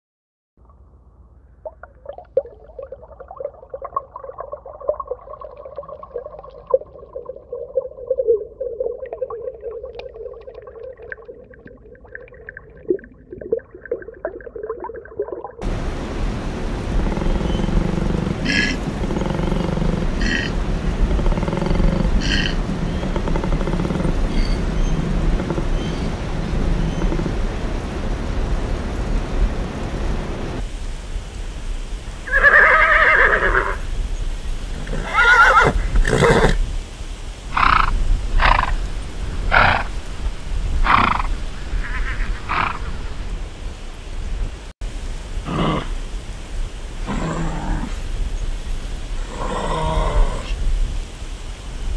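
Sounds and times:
koala bellowing: 0:16.8 - 0:27.6, 0:37.5 - 0:43.3
horse whinnying: 0:32.3 - 0:33.8, 0:34.9 - 0:36.6.

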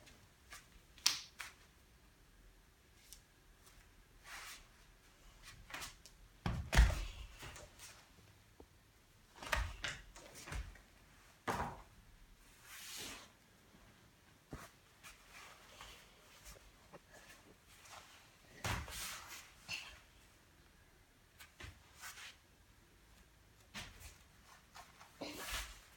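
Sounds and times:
body thumping on foam mat: 0:06.4 - 0:07.4.

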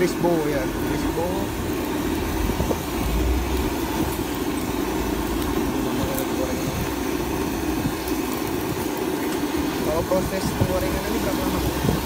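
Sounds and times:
oil sizzling in deep fryer: 0:00.0 - 0:12.0
low steady rumble: 0:00.5 - 0:08.7.

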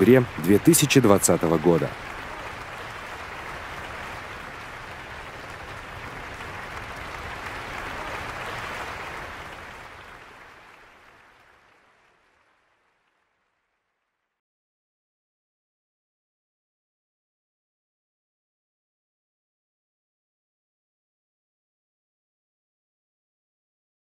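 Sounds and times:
audience applauding: 0:00.0 - 0:14.1.

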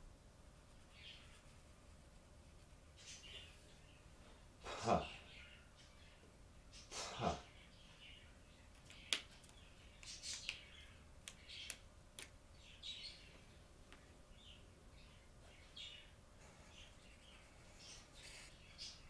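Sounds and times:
marker clicks: 0:08.8 - 0:10.6
marker squeaking on paper: 0:16.4 - 0:19.0.

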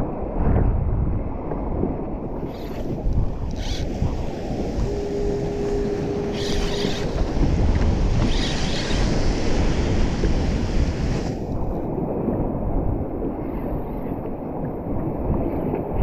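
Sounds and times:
wind buffeting microphone: 0:00.0 - 0:16.0
waves washing around boat: 0:01.2 - 0:16.0
steady hum: 0:02.2 - 0:11.6.

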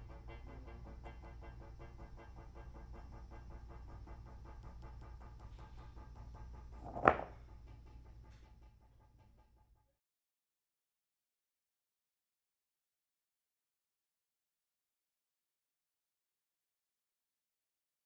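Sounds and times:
small motor pulsing: 0:00.0 - 0:07.6
low steady hum: 0:00.0 - 0:09.7
stone clacking on stones: 0:06.8 - 0:07.4.

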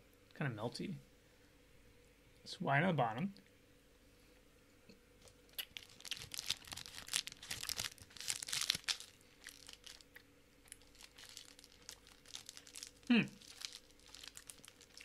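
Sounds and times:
plastic wrapper crinkling: 0:05.2 - 0:15.0.

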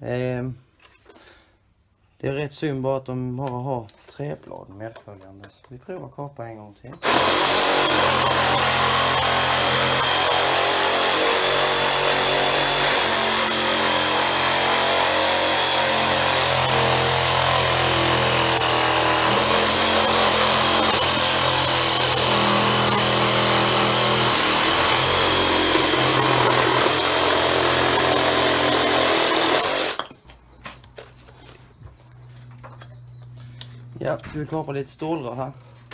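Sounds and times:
reciprocating saw cutting wood: 0:07.0 - 0:30.1.

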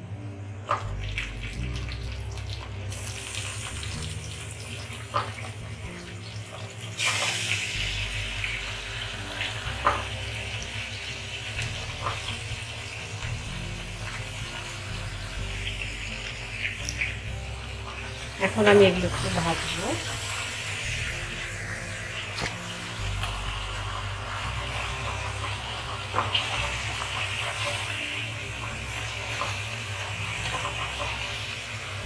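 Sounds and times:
chicken sizzling in hot oil: 0:00.6 - 0:32.0.

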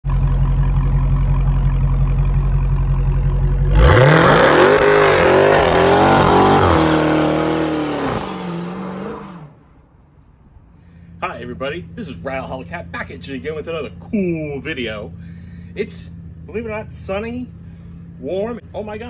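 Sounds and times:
car engine revving: 0:00.1 - 0:09.6.

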